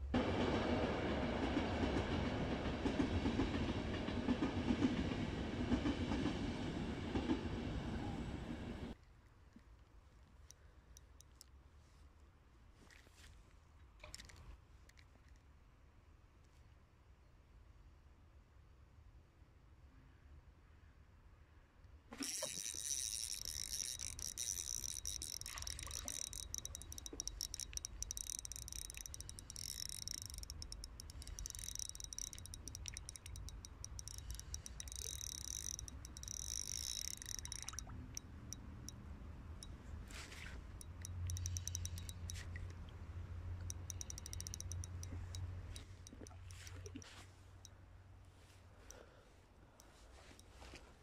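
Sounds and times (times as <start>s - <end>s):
spinning reel ticking whir: 22.1s - 39.0s, 40.8s - 42.7s, 43.6s - 47.0s.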